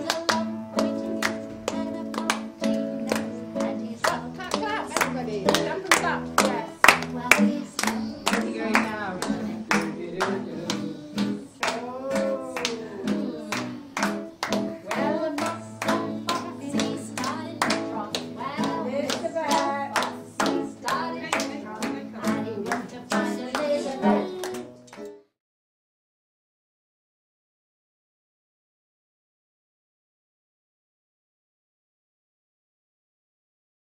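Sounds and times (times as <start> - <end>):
hand-clapping in a steady beat: 0.0 - 25.2
voices singing: 0.0 - 25.2
strummed acoustic guitar: 0.0 - 25.3.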